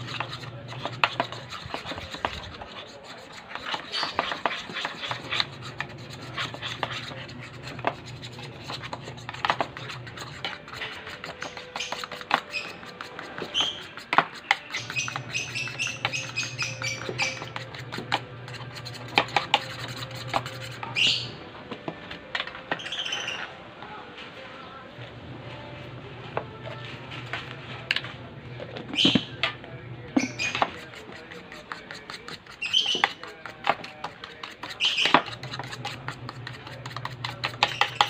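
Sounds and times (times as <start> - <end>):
fork scraping a bowl: 0.0 - 21.4, 30.2 - 38.0.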